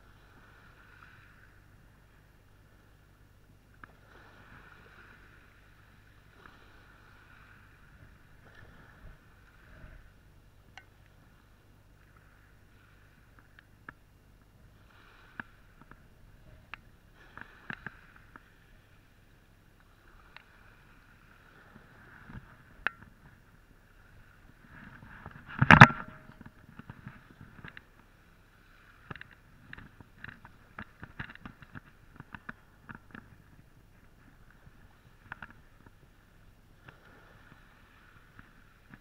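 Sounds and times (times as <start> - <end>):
camera handling knock and rustle: 25.4 - 26.9.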